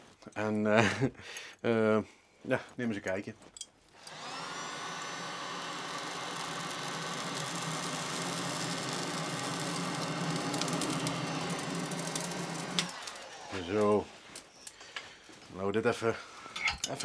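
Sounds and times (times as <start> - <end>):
crackles from sparking coals: 2.6 - 17.0
fan whirring: 4.0 - 14.4.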